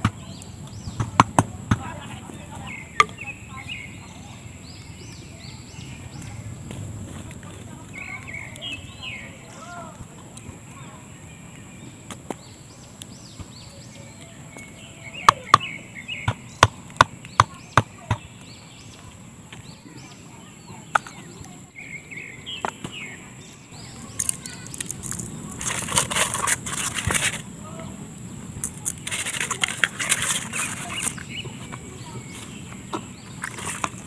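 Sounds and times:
birds chirping: 0:00.0 - 0:34.0
salt rubbed onto fish: 0:23.9 - 0:27.5, 0:28.6 - 0:31.6, 0:33.2 - 0:34.0.

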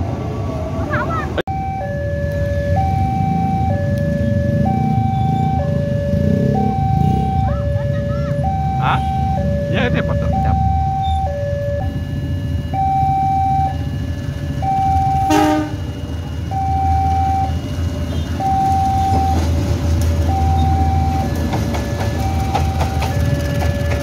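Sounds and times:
diesel train rumble: 0:00.0 - 0:24.0
two-tone warning chime: 0:01.5 - 0:19.6, 0:20.2 - 0:24.0
train horn blast: 0:15.2 - 0:15.9.

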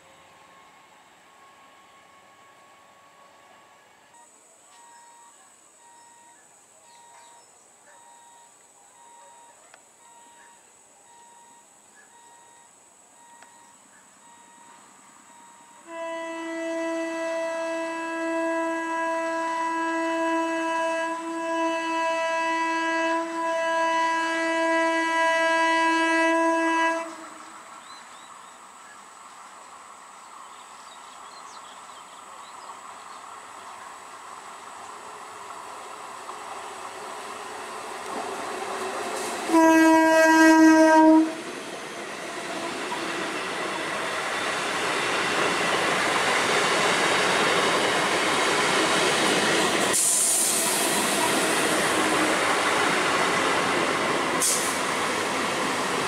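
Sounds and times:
train running on rails: 0:00.0 - 0:56.0
train horn blast: 0:15.3 - 0:27.6, 0:38.1 - 0:41.6, 0:46.6 - 0:55.2.

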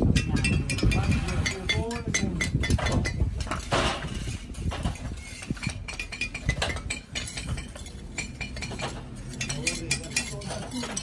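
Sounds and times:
bricks clinking and knocking: 0:00.0 - 0:11.0
brick scraping: 0:02.6 - 0:11.0.

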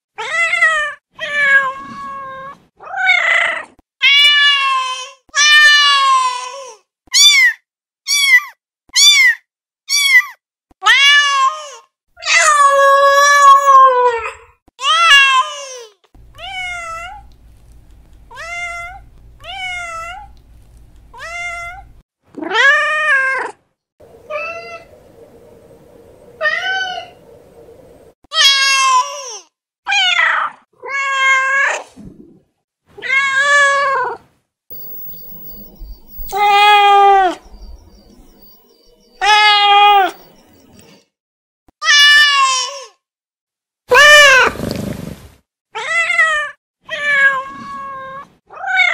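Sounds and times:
cats meowing: 0:16.2 - 0:17.5, 0:18.2 - 0:20.4, 0:21.1 - 0:22.0, 0:39.2 - 0:40.2.

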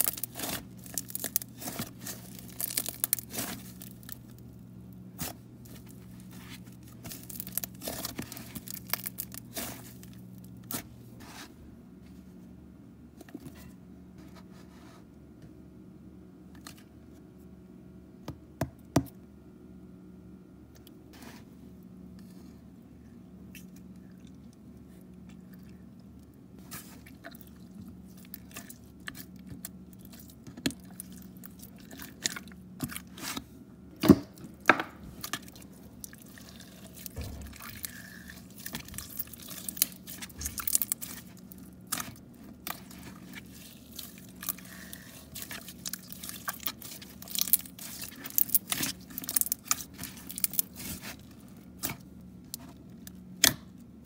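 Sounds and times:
slime crackling and popping: 0:00.0 - 0:04.4, 0:06.9 - 0:10.8, 0:36.2 - 0:51.2
faint steady hum: 0:00.0 - 0:54.0.

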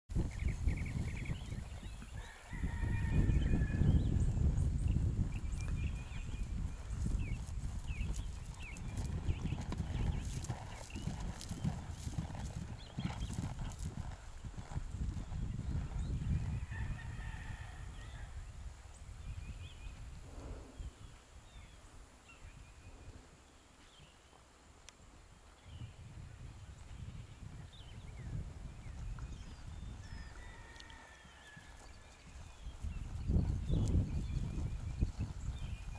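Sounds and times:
horse hoofbeats on grass: 0:04.2 - 0:16.5, 0:28.6 - 0:35.9.

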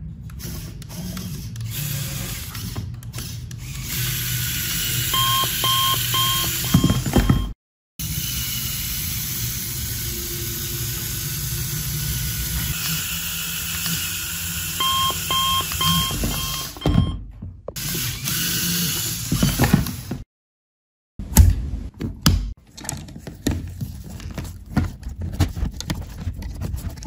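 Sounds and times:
short beeps: 0:05.2 - 0:07.6, 0:14.8 - 0:17.2
toy electric motor humming: 0:08.0 - 0:15.8, 0:17.8 - 0:19.4.

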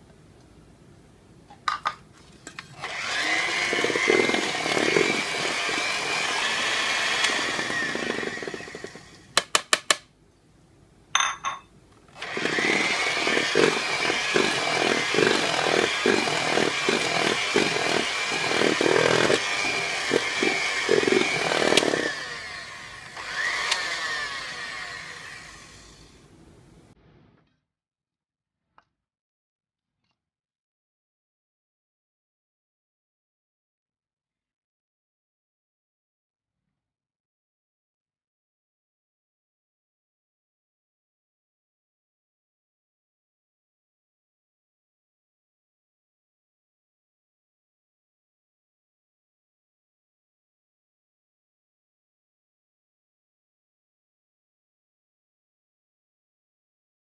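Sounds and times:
electric hand mixer whirring: 0:02.8 - 0:09.9, 0:12.2 - 0:26.2.

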